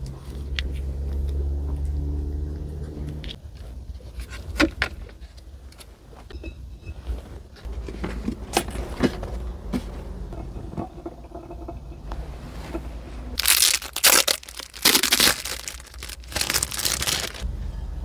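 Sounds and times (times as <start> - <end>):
packaging crinkling: 13.4 - 17.4.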